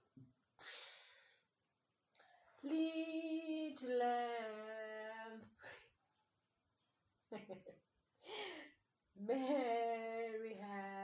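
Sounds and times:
woman singing long notes: 2.7 - 5.4.

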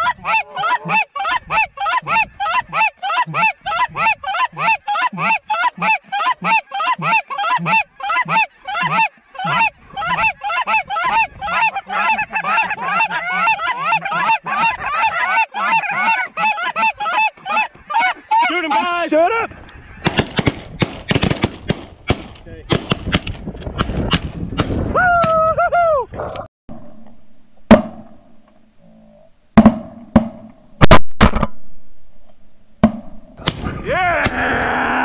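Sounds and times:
goose call honks: 0.0 - 18.9
flock of geese calling: 0.0 - 20.1.

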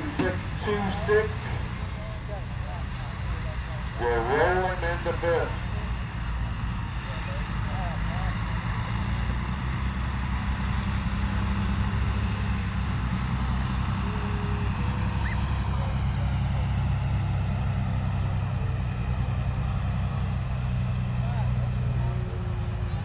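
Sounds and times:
diesel truck engine under load: 0.0 - 23.0.

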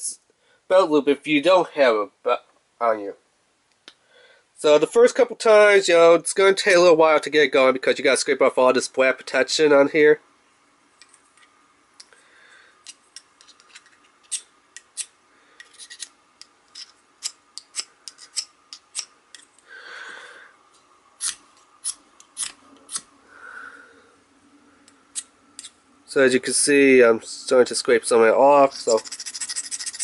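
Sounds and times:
steel striker scraping ferro rod: 12.8 - 19.5, 21.2 - 23.1, 28.6 - 30.0.

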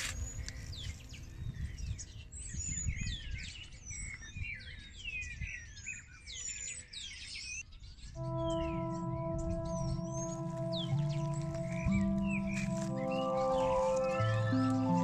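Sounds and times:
small birds chirping: 0.0 - 15.0
steady ringing chord: 8.2 - 15.0.

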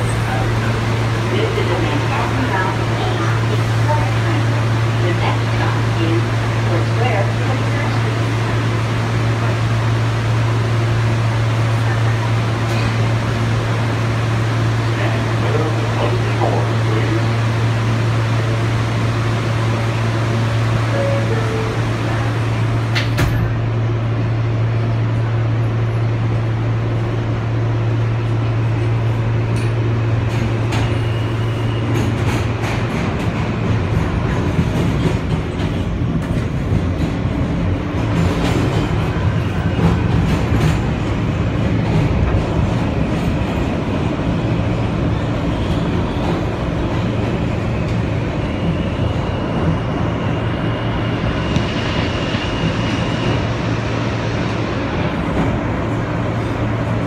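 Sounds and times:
subway train rumble in tunnel: 0.0 - 57.0
wheels squealing on rails: 30.6 - 32.6.

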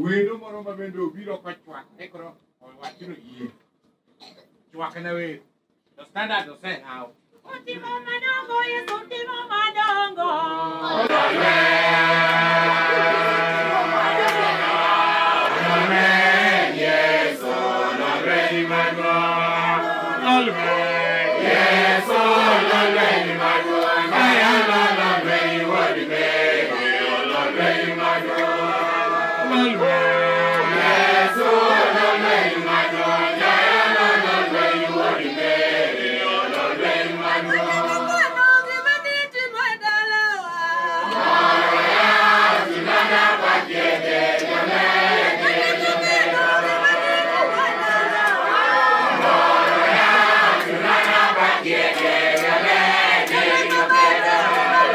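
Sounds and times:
congregation singing a hymn: 10.8 - 38.8, 41.0 - 54.9.

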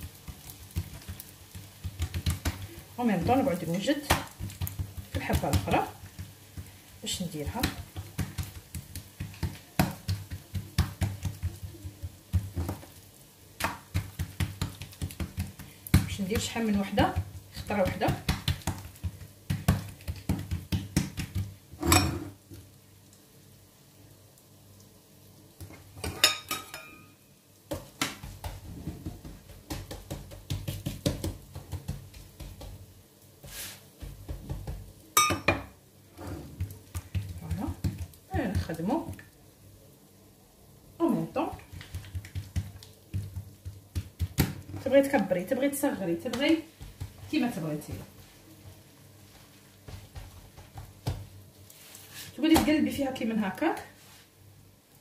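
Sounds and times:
hands patting dough: 0.0 - 21.8, 27.6 - 39.4, 41.0 - 54.3
spatula scraping on griddle: 33.4 - 33.9, 36.2 - 36.7.

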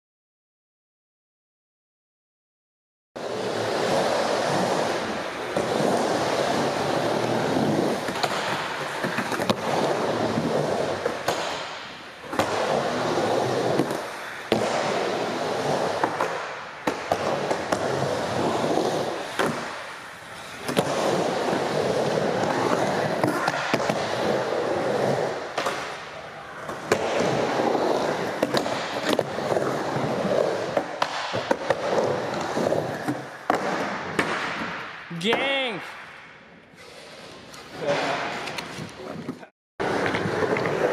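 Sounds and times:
skateboard wheels rolling on concrete: 3.2 - 34.9, 36.4 - 40.9.

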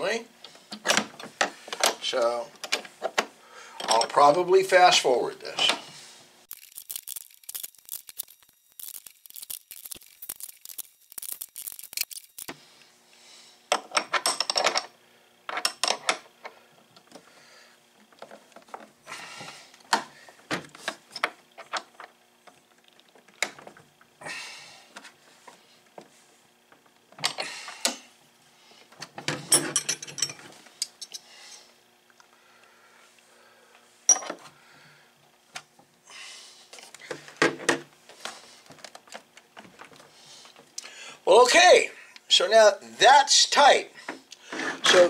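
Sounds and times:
metal clinks and clanks: 29.5 - 31.3.

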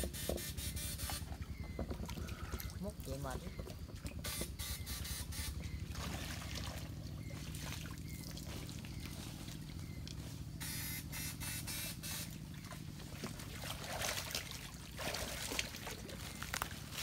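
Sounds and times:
low buzzing hum: 0.0 - 17.0
water trickling in stream: 0.2 - 10.6, 11.9 - 17.0
person wading and sloshing: 1.2 - 3.1, 5.8 - 10.6, 12.3 - 17.0.

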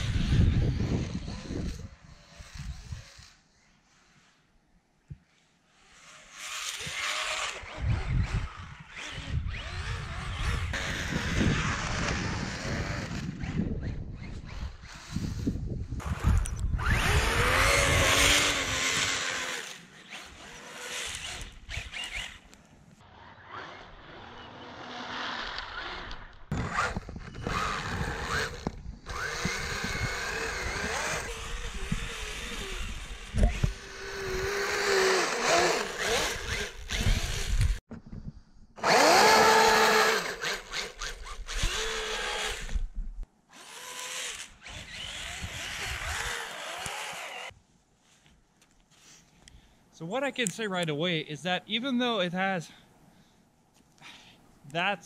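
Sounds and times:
electric motor whining: 6.0 - 22.5, 23.2 - 37.8, 38.8 - 42.9, 43.6 - 47.6.

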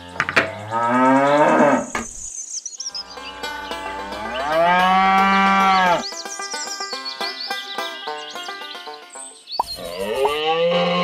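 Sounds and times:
cow mooing: 0.0 - 1.9, 3.0 - 6.0, 9.9 - 11.0.

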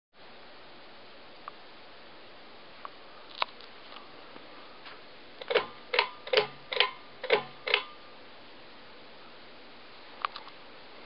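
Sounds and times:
ceiling fan ticking: 5.4 - 8.0.

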